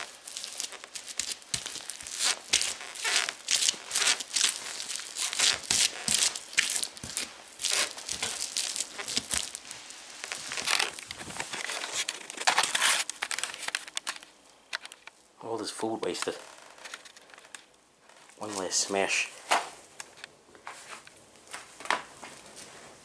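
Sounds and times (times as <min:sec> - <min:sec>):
boots stomping on food: 0:00.0 - 0:09.7.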